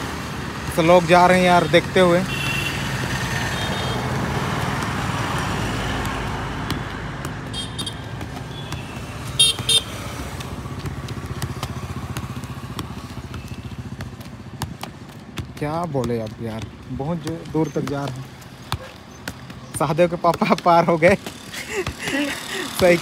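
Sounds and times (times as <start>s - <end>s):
passing vehicle engine: 2.5s - 14.4s
football taps on feet: 4.1s - 23.0s.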